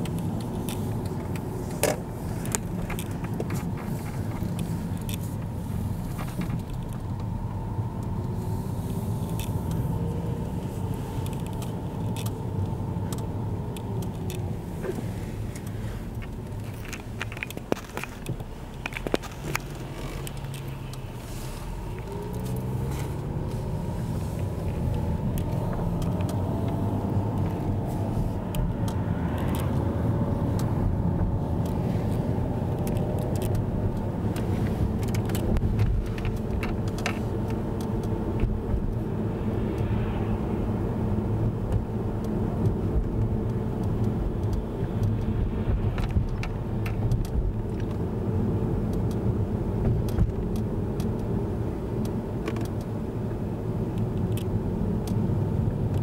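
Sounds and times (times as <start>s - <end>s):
car engine and tyre rumble: 0.0s - 56.0s
sharp clicks: 24.4s - 39.0s.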